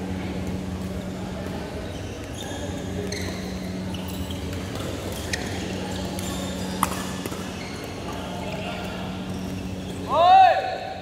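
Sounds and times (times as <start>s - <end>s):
steady low hum: 0.0s - 11.0s
shoes squeaking on court: 1.7s - 10.1s
racket striking shuttlecock: 6.8s - 7.5s.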